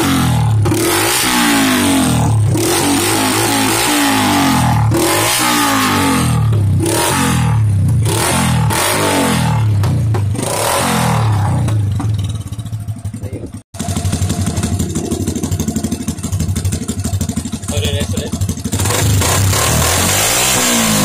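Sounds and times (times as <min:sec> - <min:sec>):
small motorcycle engine revving: 0:00.0 - 0:21.0.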